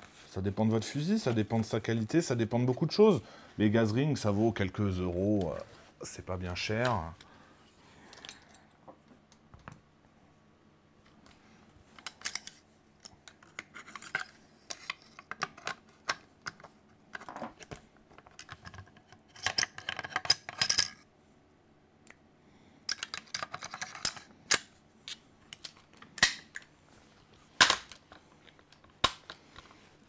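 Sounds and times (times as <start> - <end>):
metal parts clicking and scraping: 18.2 - 21.0, 22.9 - 26.4.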